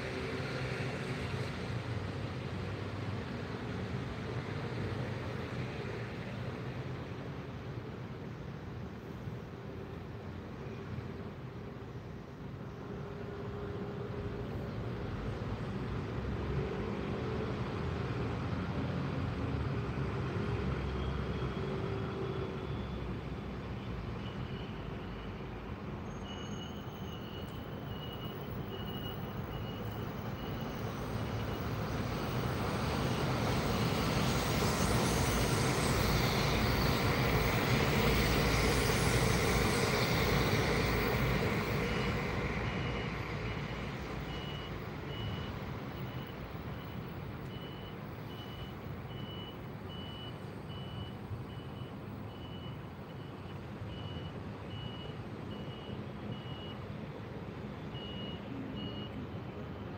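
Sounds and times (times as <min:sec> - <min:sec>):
train passing rumble: 0:24.8 - 0:50.0.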